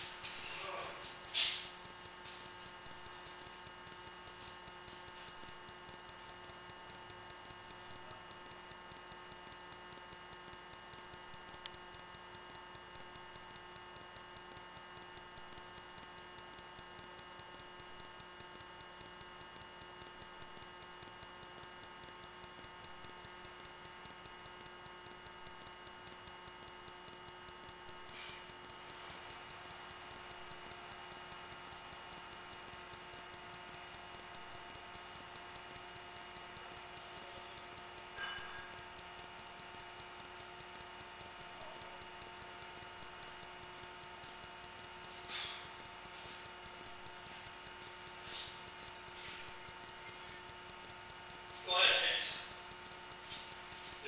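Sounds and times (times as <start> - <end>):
sharp click: 0.0 - 28.9
faint electrical hum and whine: 0.0 - 54.0
light regular ticking: 0.0 - 54.0.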